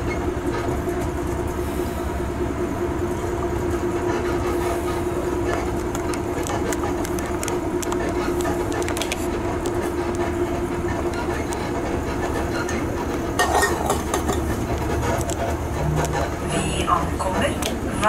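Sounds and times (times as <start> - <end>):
train rattle: 0.0 - 18.0
train rumbling: 0.0 - 18.0.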